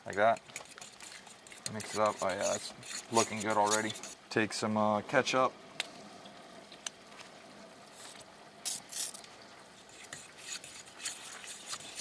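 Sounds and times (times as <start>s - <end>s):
spoon scraping bowl: 0.4s - 4.2s, 9.8s - 12.0s.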